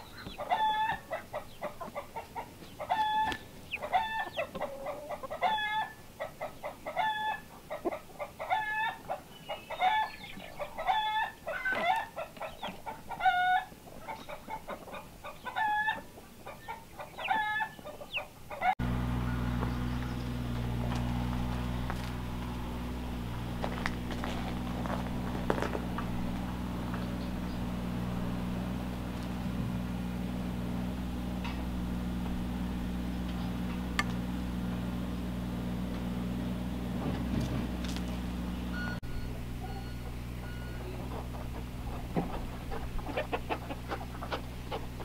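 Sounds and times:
chicks cheeping: 0.0s - 29.6s, 38.6s - 45.0s
hens calling: 0.0s - 36.8s, 37.7s - 45.0s
steady low hum: 18.8s - 45.0s.

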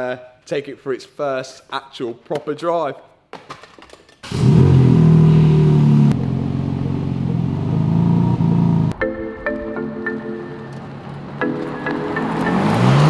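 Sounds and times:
car engine idling: 4.4s - 9.0s.

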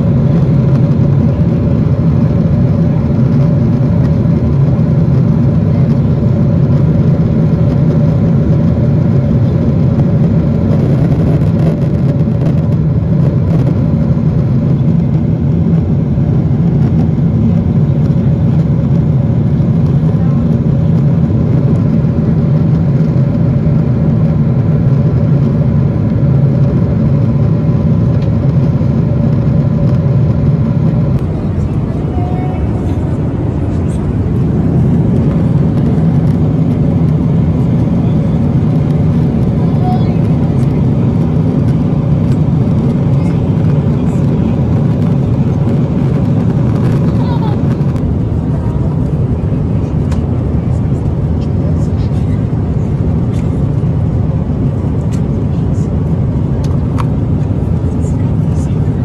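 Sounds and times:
low drone of jet engines: 0.0s - 59.0s.

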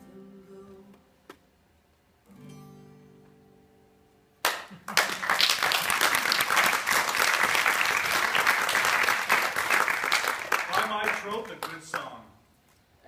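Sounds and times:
acoustic guitar chord ringing: 2.3s - 4.3s
audience applauding: 4.4s - 12.2s.

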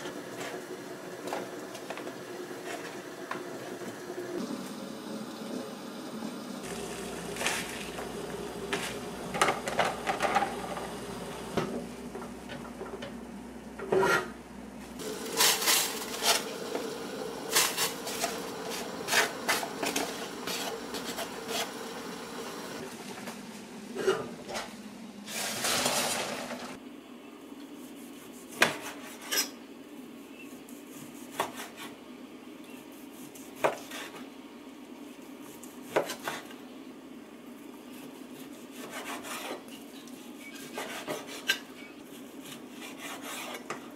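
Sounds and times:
pot and utensils clattering: 8.7s - 11.0s.

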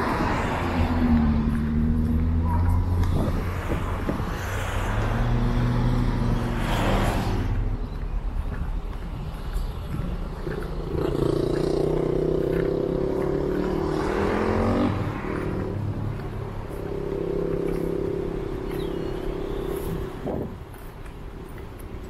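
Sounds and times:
vehicle engine pulling away: 9.4s - 20.5s.

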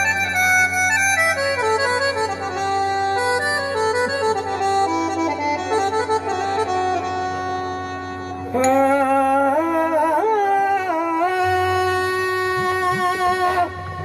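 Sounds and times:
reedy accordion-like melody: 0.0s - 8.9s
man singing held wavering note: 8.5s - 14.0s.

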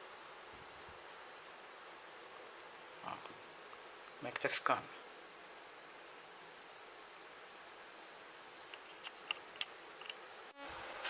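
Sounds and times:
cricket trilling: 0.0s - 11.0s
faint ticks: 8.6s - 10.3s.

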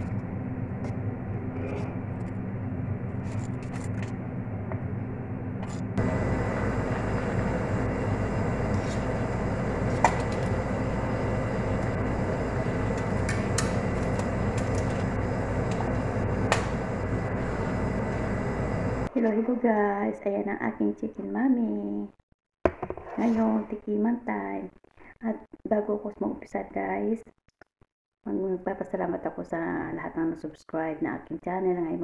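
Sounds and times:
steady hum: 0.0s - 19.2s.

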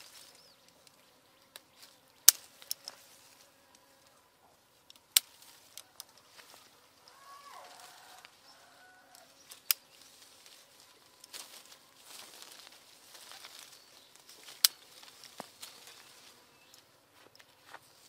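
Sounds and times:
leaves and branches rustling: 0.0s - 18.0s
distant animal bleat: 7.0s - 9.3s.

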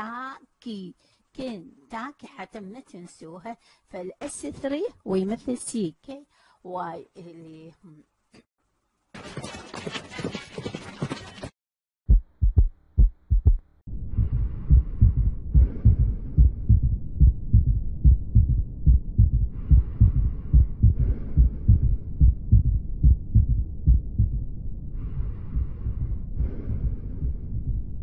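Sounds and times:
heartbeat through stethoscope: 12.1s - 28.0s.

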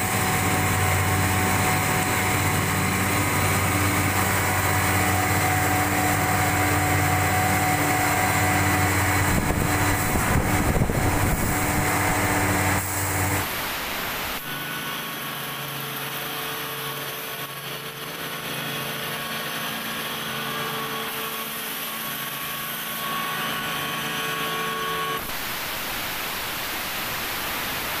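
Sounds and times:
exhaust fans humming: 0.0s - 14.5s.

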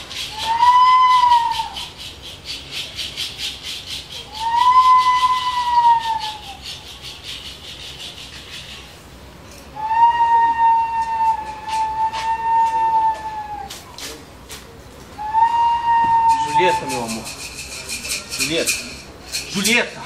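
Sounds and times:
long whistle-like notes: 0.2s - 1.9s, 4.3s - 6.6s, 9.7s - 13.7s, 15.2s - 17.7s.

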